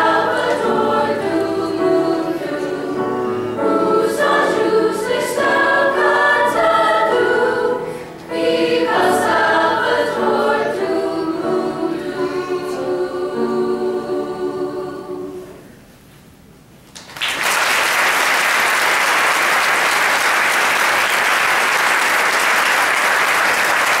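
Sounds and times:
choir singing chord: 0.0s - 15.8s
audience applause: 17.0s - 24.0s.

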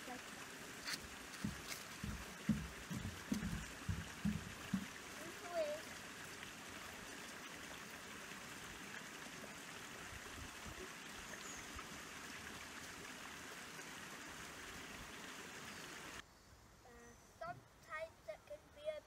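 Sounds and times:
small stream flowing: 0.0s - 16.2s.

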